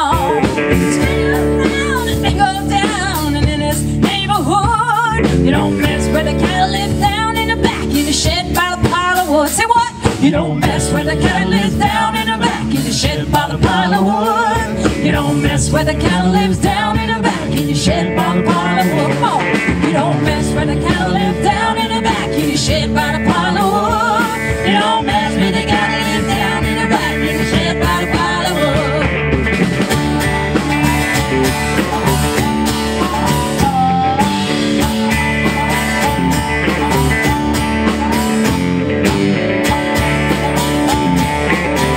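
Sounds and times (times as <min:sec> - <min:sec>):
woman singing: 0:00.0 - 0:29.2, 0:32.4 - 0:36.4
live rock band playing: 0:00.0 - 0:41.9.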